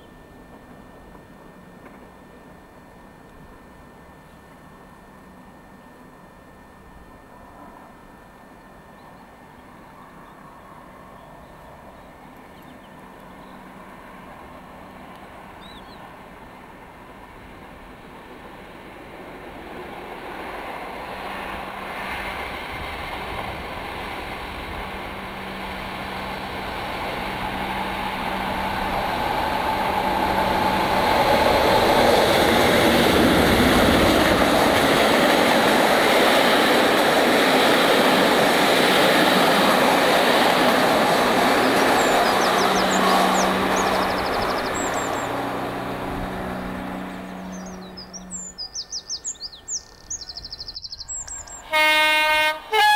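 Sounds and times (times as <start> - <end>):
diesel locomotive engine growl: 0.0 - 52.9
train rumble: 0.0 - 52.9
faint bird chirps: 15.6 - 16.1, 47.3 - 51.7.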